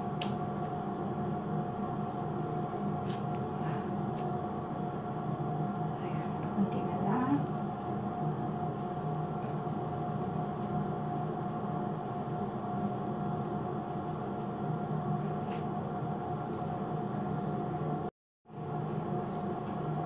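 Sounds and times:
machine hum with faint whine: 0:00.0 - 0:20.0.

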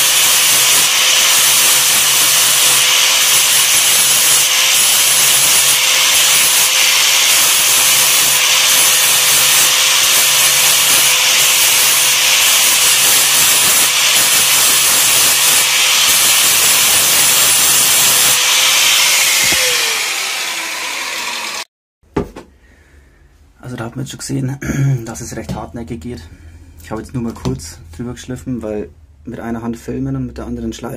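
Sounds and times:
angle grinder grinding steel: 0:00.0 - 0:21.7.

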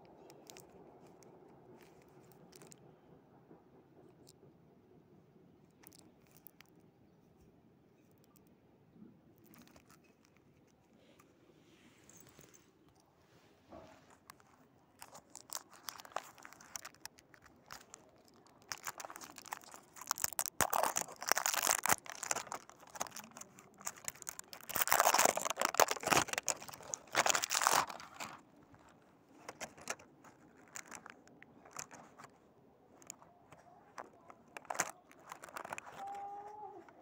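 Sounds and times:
plastic packaging crinkling: 0:00.2 - 0:01.2, 0:01.8 - 0:02.8, 0:05.8 - 0:06.7, 0:09.4 - 0:10.7, 0:14.1 - 0:37.0.

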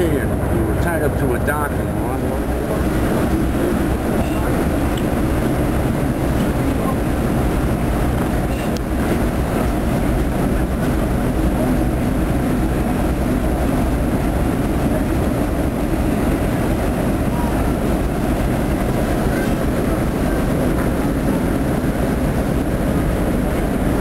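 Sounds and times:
boat engine rumbling: 0:00.0 - 0:24.0
water churning along hull: 0:00.0 - 0:24.0.

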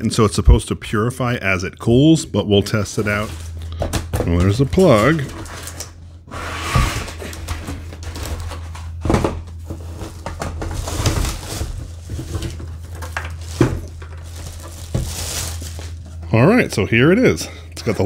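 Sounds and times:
plastic bag rustling: 0:02.7 - 0:06.2, 0:07.0 - 0:16.2.

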